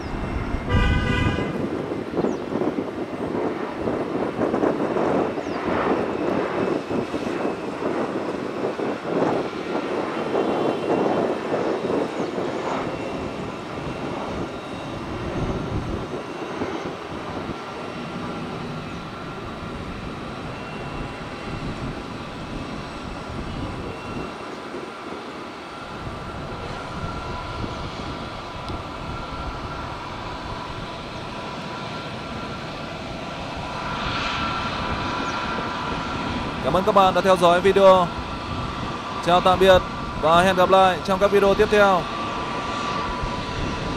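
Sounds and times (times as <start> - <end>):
faint steady jet whine: 0.0 - 43.9
jet engine rumble: 0.0 - 43.9.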